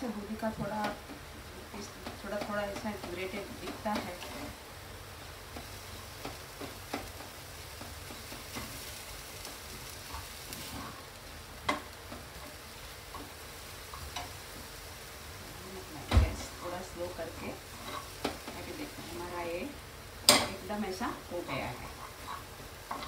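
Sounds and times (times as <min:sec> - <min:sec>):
apple sizzling in frying pan: 0:00.0 - 0:23.0
spatula tapping pan: 0:02.0 - 0:04.3, 0:05.5 - 0:10.7, 0:11.6 - 0:14.6, 0:17.9 - 0:18.7, 0:20.3 - 0:20.6
spatula scraping: 0:21.5 - 0:23.0.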